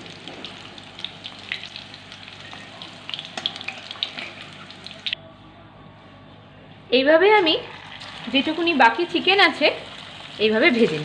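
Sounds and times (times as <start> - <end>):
chicken deep-frying in hot oil: 0.0 - 5.2, 7.7 - 11.0.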